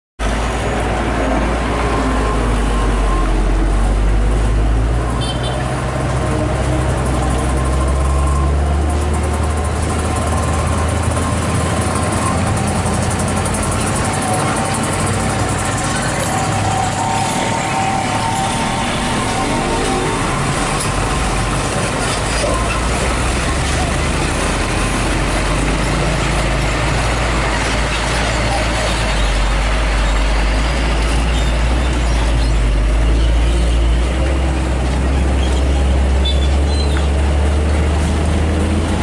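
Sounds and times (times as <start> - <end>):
diesel engines rumbling: 0.2 - 39.0
motorcycles passing: 5.8 - 30.1.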